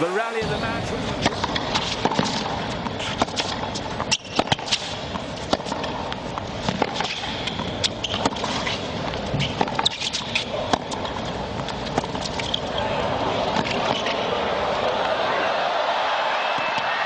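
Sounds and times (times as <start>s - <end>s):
steady background noise: 0.0s - 17.0s
racket striking ball: 1.2s - 12.6s
tennis ball bouncing: 1.2s - 12.8s.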